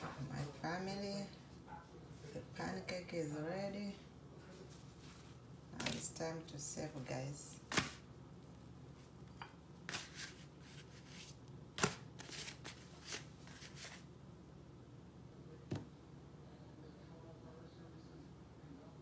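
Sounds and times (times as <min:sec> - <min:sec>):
papery rustles: 0:09.9 - 0:14.0.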